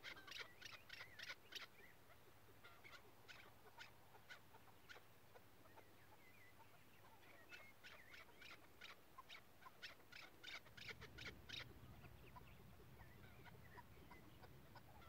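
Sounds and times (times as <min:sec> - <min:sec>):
partridge calling: 0:00.0 - 0:15.0.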